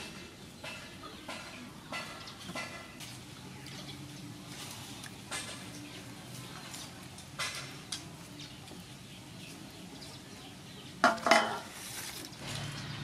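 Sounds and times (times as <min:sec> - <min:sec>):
loud clattering knocks on bamboo tray: 0:11.0 - 0:11.7.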